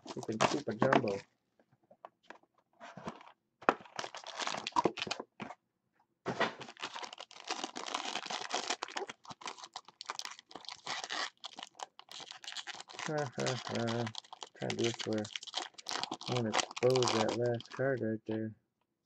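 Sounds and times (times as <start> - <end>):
foil wrapper crinkling: 0.0 - 1.2, 3.8 - 5.2, 6.6 - 17.8
cardboard box rustling: 2.8 - 5.5.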